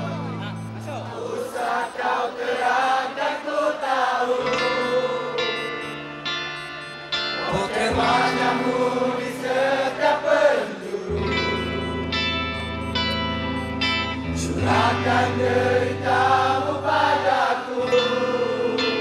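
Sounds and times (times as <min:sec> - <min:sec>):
people singing: 0:00.0 - 0:06.0, 0:07.3 - 0:12.6, 0:14.0 - 0:19.0
electric guitars: 0:04.3 - 0:19.0
bass guitar: 0:11.1 - 0:16.4.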